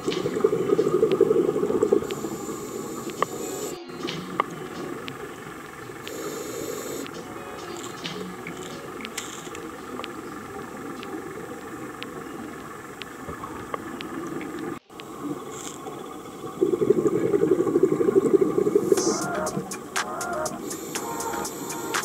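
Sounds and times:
faint clicks: 0:00.0 - 0:16.2
low underwater rumbling hiss: 0:00.0 - 0:22.0
regulator bubbles crackling: 0:00.0 - 0:22.0.

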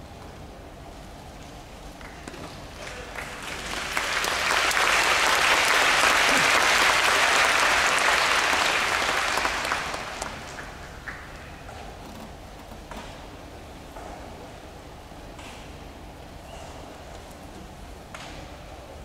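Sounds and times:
crowd applauding: 0:02.0 - 0:11.3.

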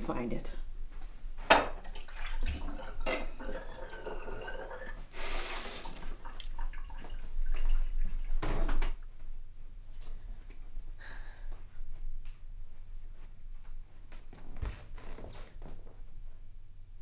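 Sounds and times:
water at kitchen sink: 0:01.5 - 0:09.0
dishes clattering: 0:02.5 - 0:04.7.

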